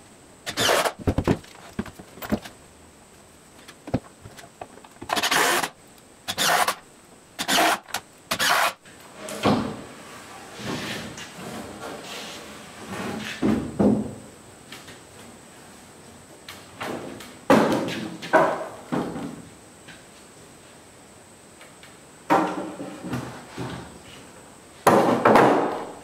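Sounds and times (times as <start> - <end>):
wooden frame scraping on wood: 6.3 - 6.8, 7.4 - 8.8
wooden frame dragging: 10.0 - 13.4.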